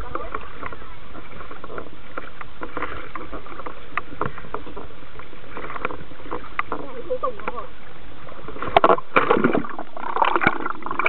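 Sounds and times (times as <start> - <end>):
water lapping against a boat hull: 0.0 - 11.0.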